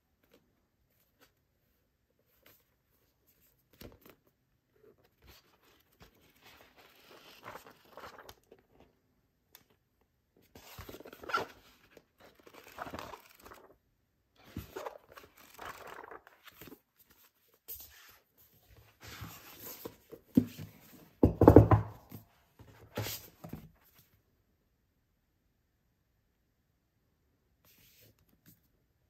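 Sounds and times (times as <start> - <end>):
paper rustling and crinkling: 4.9 - 8.9, 10.5 - 13.8, 14.4 - 21.0.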